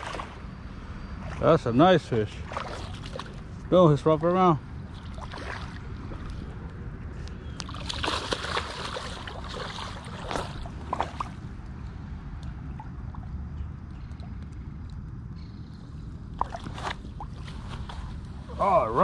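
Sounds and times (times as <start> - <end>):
fish thrashing and splashing: 2.4 - 3.5, 4.8 - 6.2, 7.6 - 11.5.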